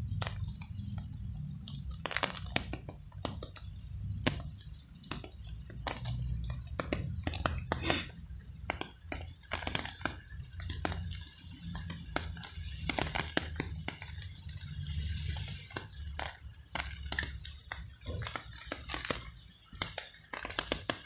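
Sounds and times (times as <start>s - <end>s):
low steady rumble: 0.0s - 8.6s
cat chewing with wet clicks: 0.1s - 21.0s.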